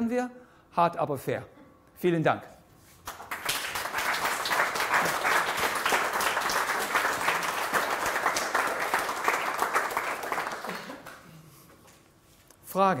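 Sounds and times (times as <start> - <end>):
audience applauding: 3.1 - 11.3.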